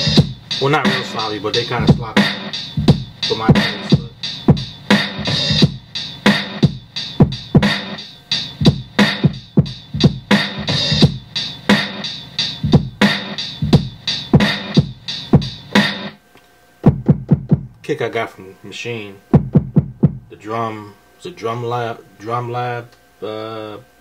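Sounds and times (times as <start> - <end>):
hip-hop drum break: 0.0 - 16.2, 16.8 - 17.7, 19.3 - 20.3.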